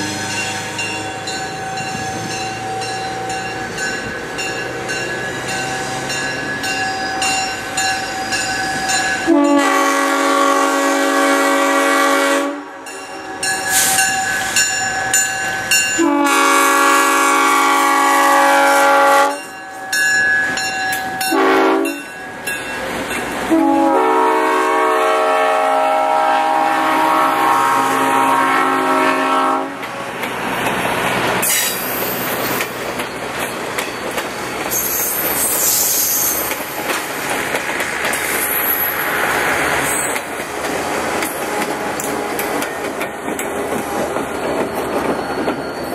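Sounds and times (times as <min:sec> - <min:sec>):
train rumbling past: 0:00.0 - 0:45.9
locomotive air horn blasts: 0:09.3 - 0:12.9, 0:16.0 - 0:19.5, 0:21.3 - 0:22.0, 0:23.5 - 0:29.8
high wheel squeal: 0:13.4 - 0:15.0, 0:31.4 - 0:37.3, 0:38.2 - 0:40.3, 0:43.8 - 0:45.9.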